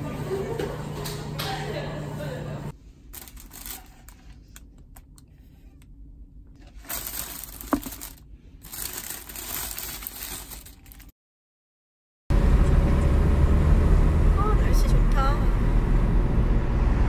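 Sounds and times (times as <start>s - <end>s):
plastic bag crinkling: 3.1s - 4.4s, 6.6s - 11.1s.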